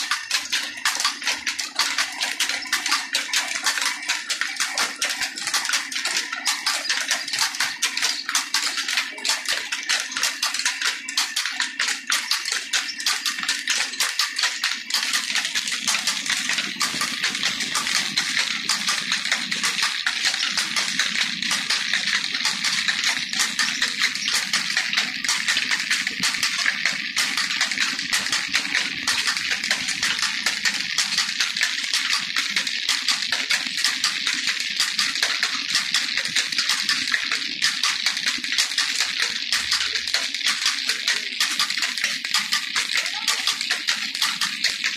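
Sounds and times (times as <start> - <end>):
flour mill clattering: 0.0 - 44.9.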